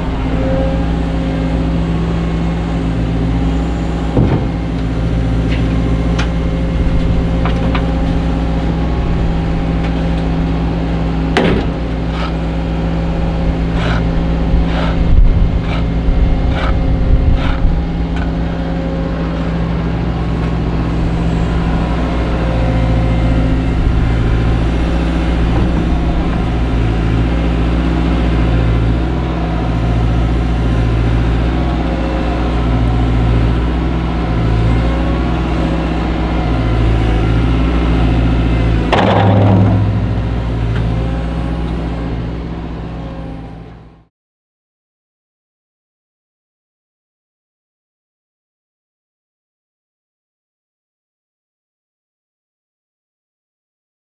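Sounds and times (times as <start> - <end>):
diesel engine running under load: 0.0 - 44.1
metallic knocks of bucket on trailer: 4.1 - 4.7, 11.3 - 11.9, 25.5 - 26.6, 38.8 - 41.1.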